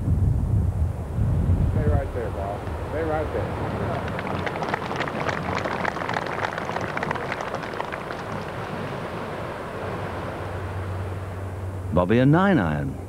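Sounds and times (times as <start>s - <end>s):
wind noise: 0.0s - 12.0s
spectators applauding: 3.0s - 8.9s.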